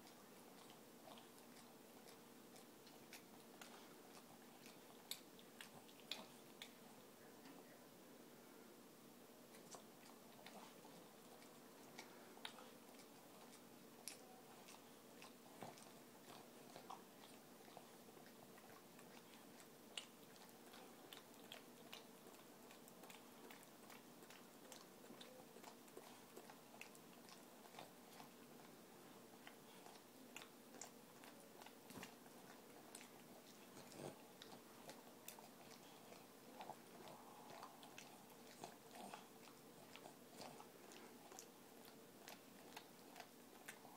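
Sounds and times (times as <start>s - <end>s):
dog licking wet smacking: 9.5s - 43.9s.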